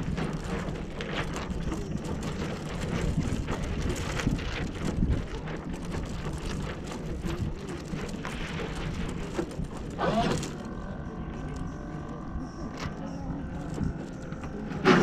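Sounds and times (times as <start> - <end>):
wind on the microphone: 0.0 - 10.4.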